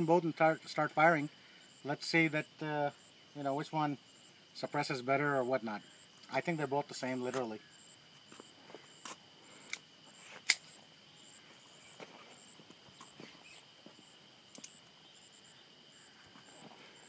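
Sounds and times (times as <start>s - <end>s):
high insect drone: 0.0s - 17.0s
sharp metallic clicks of pistols: 9.6s - 10.7s.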